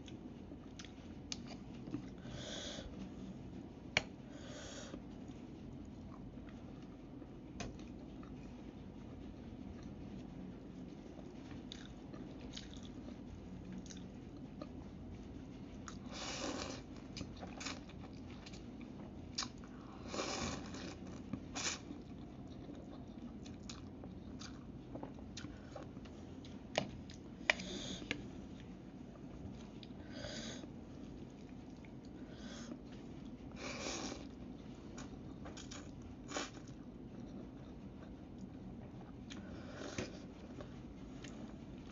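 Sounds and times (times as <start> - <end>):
person chewing: 0.0 - 2.2, 11.2 - 14.8, 15.8 - 28.3, 35.0 - 41.5.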